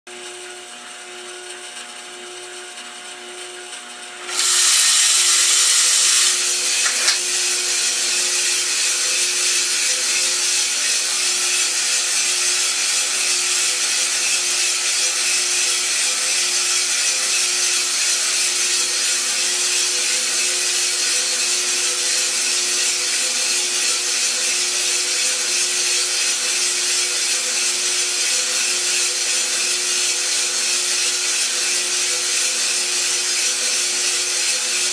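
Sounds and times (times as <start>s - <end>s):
coffee roaster motor hum: 0.1s - 34.9s
beans tumbling in drum: 4.2s - 7.1s
coffee beans pouring into drum: 4.2s - 13.2s.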